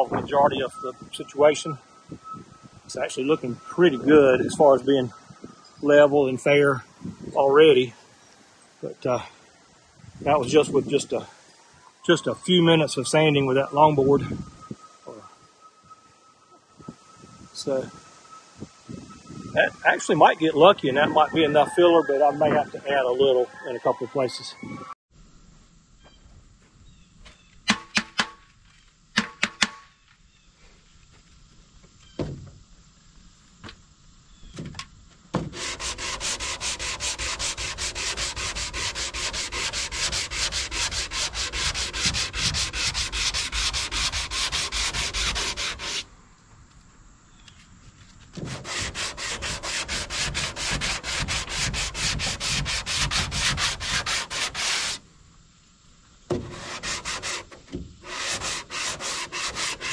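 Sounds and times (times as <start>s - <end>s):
sanding block strokes: 35.4s - 46.1s, 48.4s - 55.0s, 56.4s - 59.9s.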